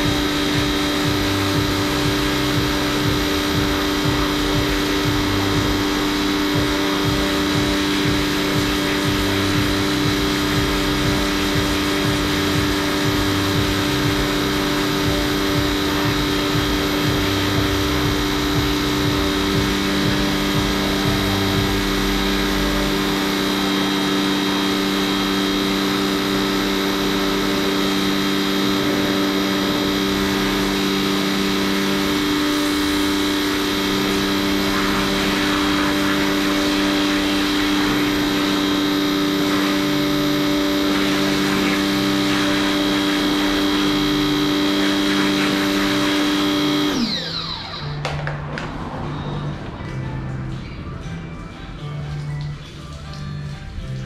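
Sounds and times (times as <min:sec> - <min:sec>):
pressure washer motor hum: 0:00.0 - 0:54.0
water spray hissing: 0:31.5 - 0:46.5.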